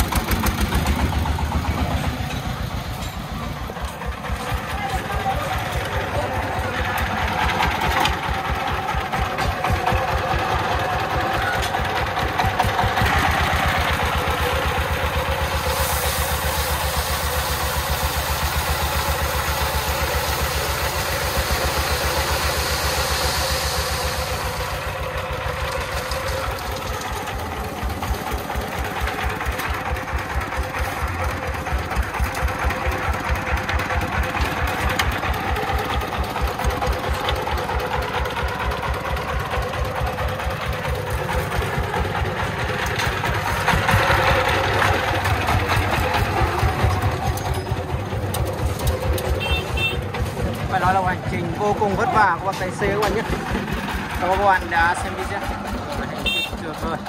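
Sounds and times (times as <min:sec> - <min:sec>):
diesel engine chugging: 0:00.0 - 0:57.0
gravel pouring off truck bed: 0:15.4 - 0:24.8.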